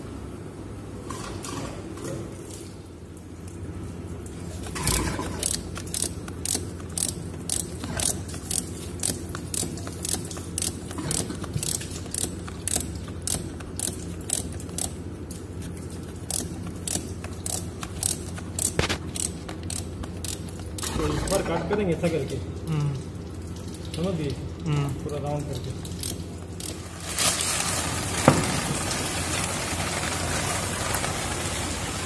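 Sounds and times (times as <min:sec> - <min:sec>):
steady low hum: 0:00.0 - 0:30.2
ratchet wrench clicking: 0:04.7 - 0:15.0, 0:16.3 - 0:20.9.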